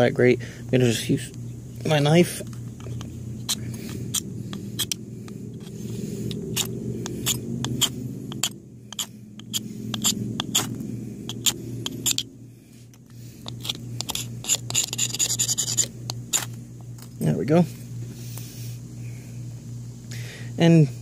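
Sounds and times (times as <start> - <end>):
low rumble: 2.5 - 13.4
knife scraping fire steel: 5.6 - 12.3, 13.4 - 16.6.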